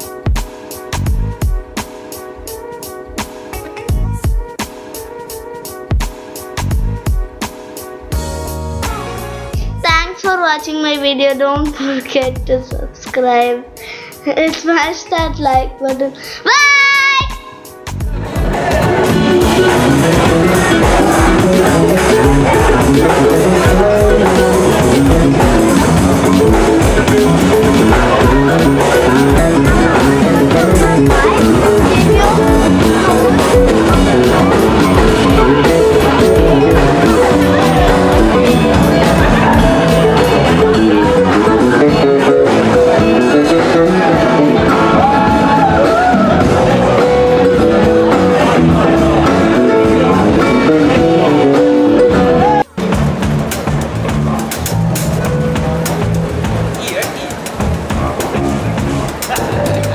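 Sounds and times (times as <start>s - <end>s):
drum kit: 0.0s - 10.0s, 17.2s - 59.9s
electric guitar: 18.2s - 59.9s
person singing: 19.6s - 46.0s.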